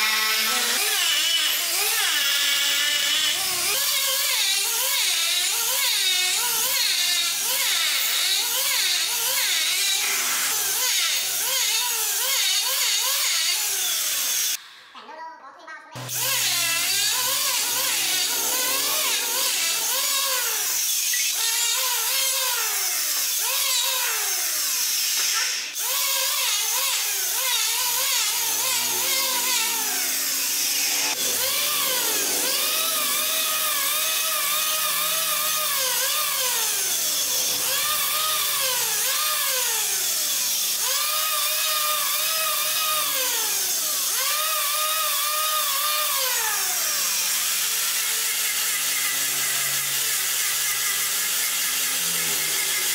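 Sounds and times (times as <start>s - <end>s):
electric planer shaving wood: 0.0s - 14.6s, 16.0s - 52.9s.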